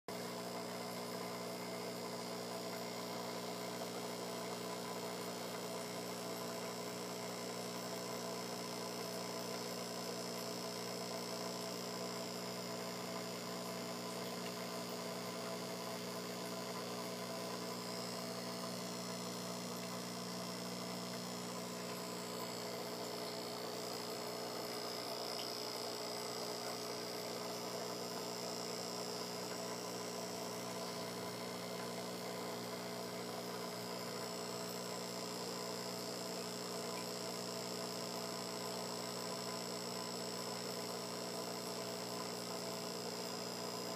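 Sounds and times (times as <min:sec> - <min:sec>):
electrical hum: 0:00.1 - 0:43.9
faint high whine: 0:14.0 - 0:34.8.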